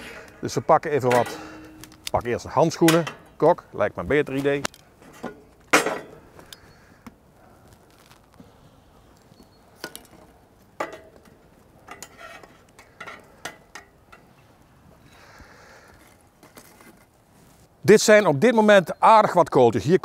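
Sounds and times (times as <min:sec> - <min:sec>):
metallic clinks and knocks: 0:01.0 - 0:03.4.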